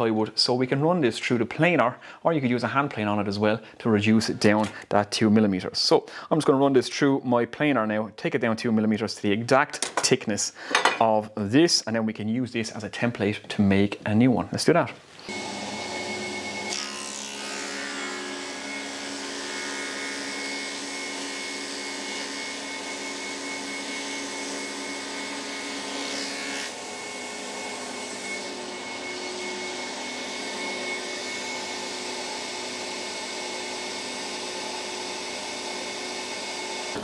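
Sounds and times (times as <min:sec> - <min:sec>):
planer whirring hum: 0:15.3 - 0:37.0.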